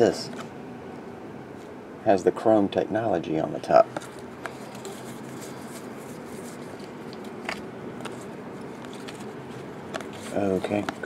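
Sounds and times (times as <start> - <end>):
trading cards sliding and rubbing: 3.9 - 11.0
light clicks of card edges: 9.9 - 11.0.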